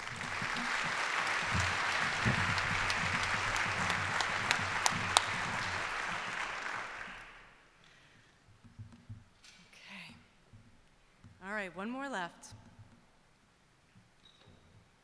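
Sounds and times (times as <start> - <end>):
sharp single claps: 0.0 - 7.4
audience applauding: 0.0 - 7.6.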